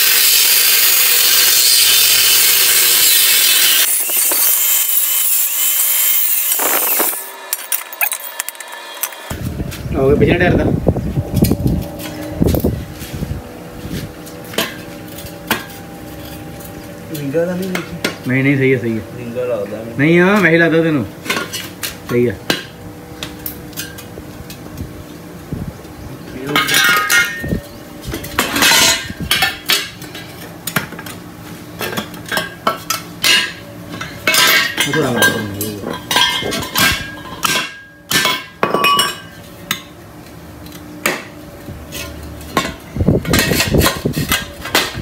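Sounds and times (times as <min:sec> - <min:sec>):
steel tubing clanking and scraping: 0:02.5 - 0:09.4, 0:26.5 - 0:30.4, 0:31.8 - 0:39.4, 0:41.9 - 0:45.0.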